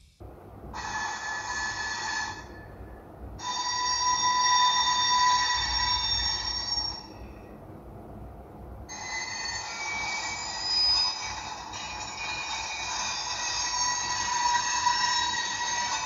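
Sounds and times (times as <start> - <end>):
model train rumble: 0.7 - 7.0
wheel flange squeal: 0.8 - 2.7, 8.9 - 16.0.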